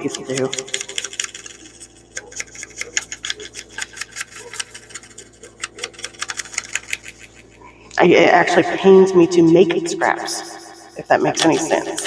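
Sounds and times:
foam pad scratching paper: 0.0s - 7.6s.

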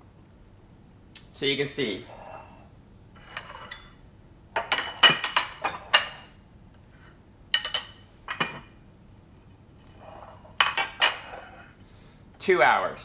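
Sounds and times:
metal spoons clinking on plates: 4.6s - 6.3s, 7.5s - 8.7s, 10.6s - 11.3s.

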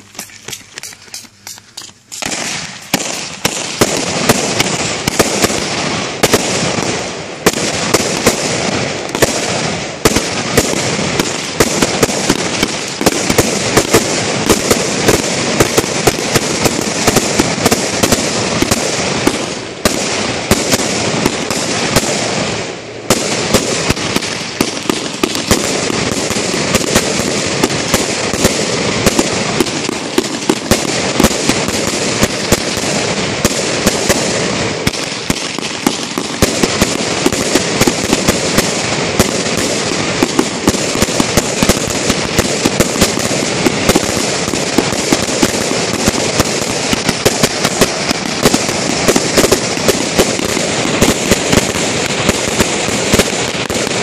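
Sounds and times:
fireworks bangs: 0.0s - 54.0s
fireworks crackling and hissing: 0.0s - 54.0s.

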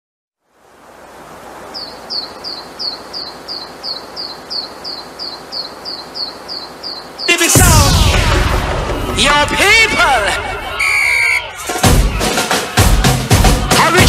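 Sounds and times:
steady hiss: 0.4s - 9.0s
high falling chirp: 1.7s - 11.8s.

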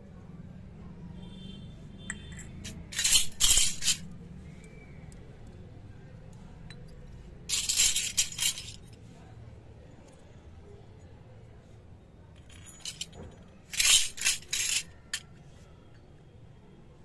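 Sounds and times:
metal toy dishes clinking: 2.1s - 4.1s, 6.7s - 9.0s, 12.4s - 15.3s.

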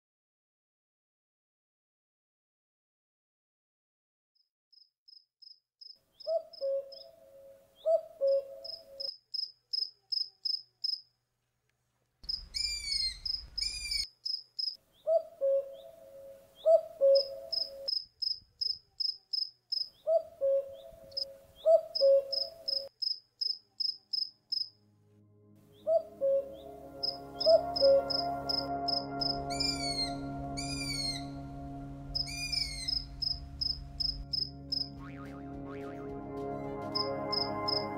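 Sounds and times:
insect chirping: 8.6s - 11.1s, 12.2s - 14.8s, 17.2s - 20.0s, 22.0s - 24.8s, 32.1s - 34.8s
lower repeated call: 25.3s - 37.9s.

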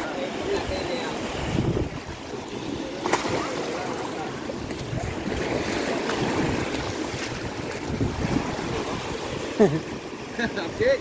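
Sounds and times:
sea surf washing in: 0.0s - 11.0s
wind buffeting microphone: 0.5s - 3.5s, 4.5s - 9.5s.

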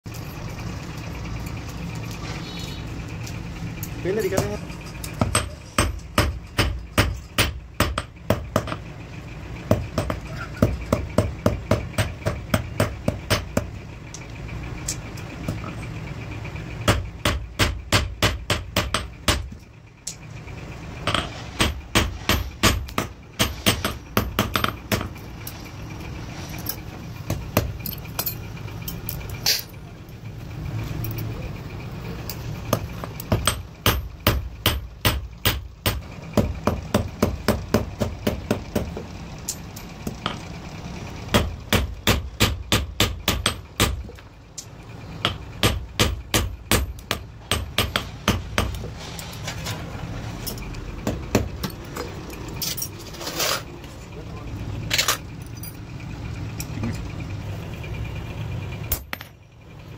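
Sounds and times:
steady low hum: 0.1s - 59.9s
hammer striking metal on anvil: 5.2s - 8.8s, 9.7s - 13.7s, 16.8s - 19.6s, 21.0s - 25.2s, 32.7s - 38.9s, 41.3s - 44.1s, 45.2s - 48.8s.

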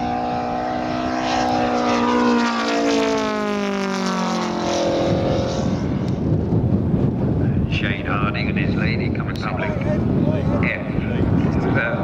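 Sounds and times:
model airplane engine running: 0.0s - 12.0s
wind noise on microphone: 3.0s - 12.0s.

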